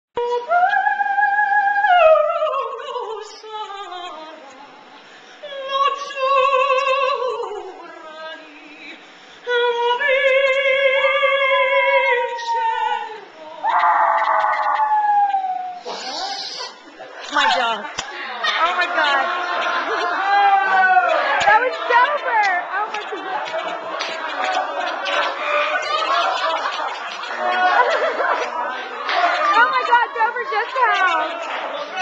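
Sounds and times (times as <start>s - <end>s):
puppy howling: 13.7s - 15.9s.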